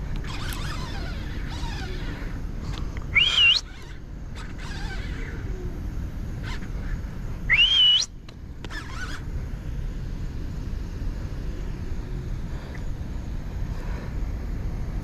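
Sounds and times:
man whistling loudly: 3.1 - 3.7, 7.5 - 8.2.

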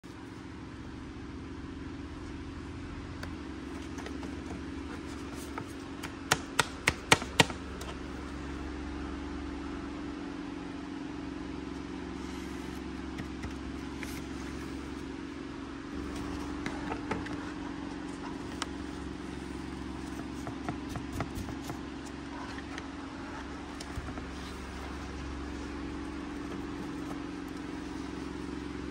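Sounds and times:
fingers tapping packaging: 4.0 - 7.6
low hum: 7.6 - 28.9.

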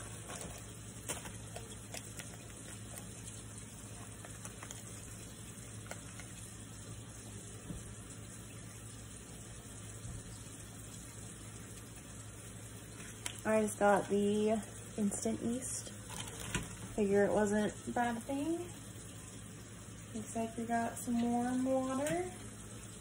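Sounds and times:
paper packet ticks and rustles: 0.0 - 6.5, 13.0 - 13.5, 16.0 - 16.9.

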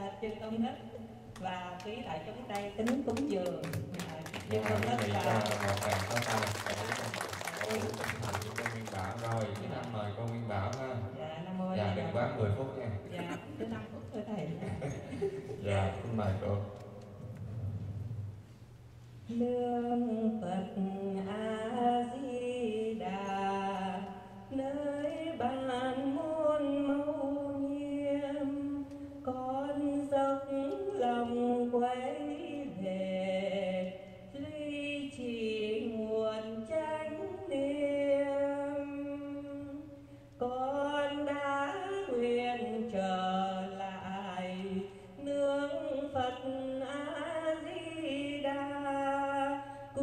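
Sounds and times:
woman singing into a microphone: 19.3 - 50.0.

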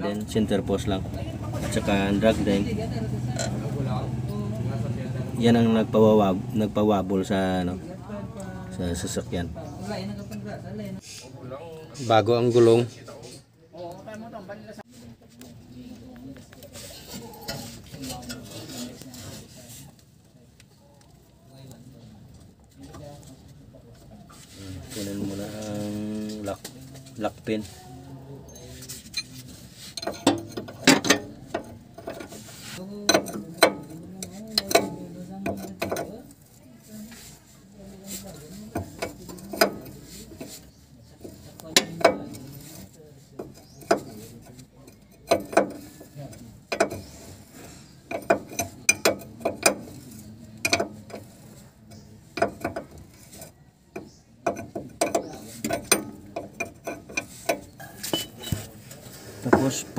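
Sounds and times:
wrench clicking on metal nut: 48.1 - 51.3, 52.4 - 58.3.

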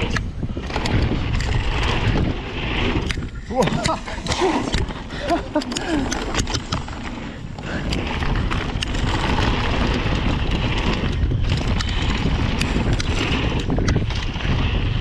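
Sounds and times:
bike clicks and rattles: 0.0 - 15.0
wind rushing over microphone: 0.0 - 15.0.

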